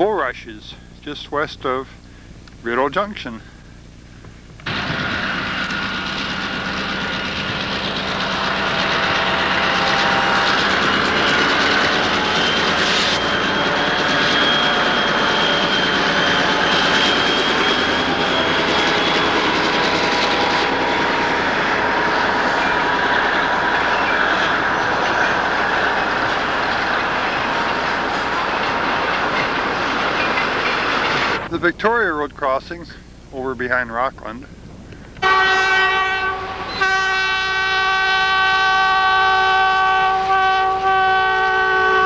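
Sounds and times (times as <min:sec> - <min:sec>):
thin steady whine: 0:00.0 - 0:38.4
freight cars clattering rumble: 0:04.5 - 0:32.4
diesel locomotives passing: 0:04.6 - 0:42.0.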